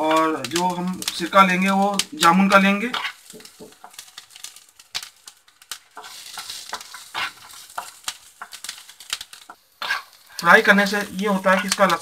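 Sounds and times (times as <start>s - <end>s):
garlic sizzling in oil: 0.0s - 12.0s
wooden spatula scraping pan: 2.7s - 4.0s, 5.9s - 11.8s.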